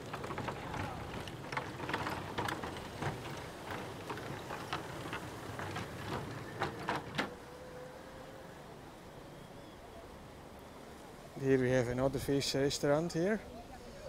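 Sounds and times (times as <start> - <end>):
bicycle rattling over planks: 0.0 - 7.4.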